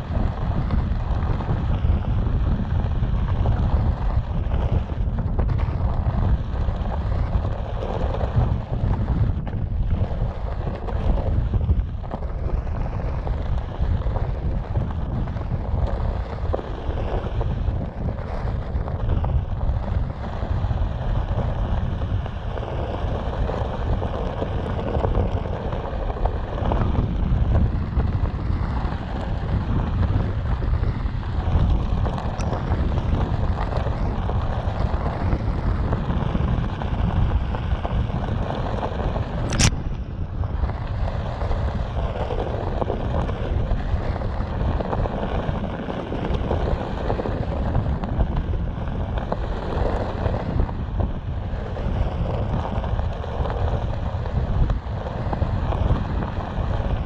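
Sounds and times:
wind on microphone: 0.0 - 57.0.

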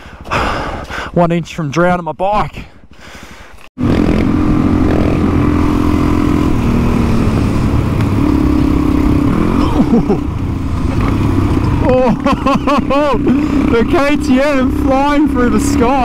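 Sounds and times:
dirt bike engine running: 3.8 - 16.0.

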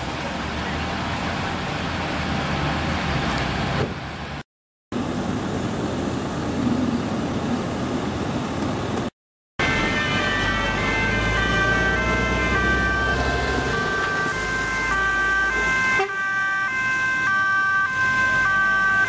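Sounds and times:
two-tone sirens: 9.6 - 19.0.

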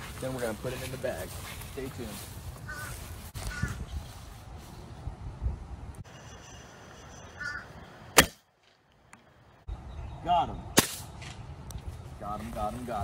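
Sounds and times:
bird calling: 2.6 - 4.0, 6.0 - 8.2.

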